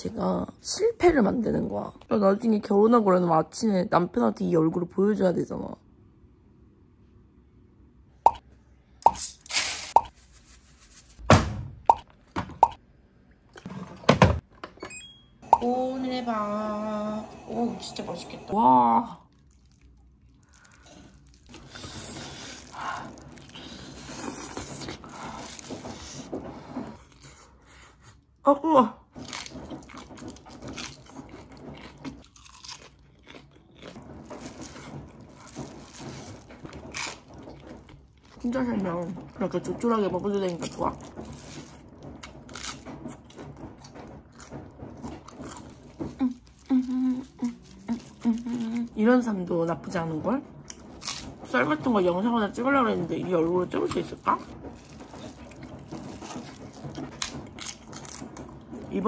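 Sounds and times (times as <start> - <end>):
person chewing food: 19.3 - 26.0, 29.2 - 38.4, 45.2 - 48.9, 54.3 - 58.8.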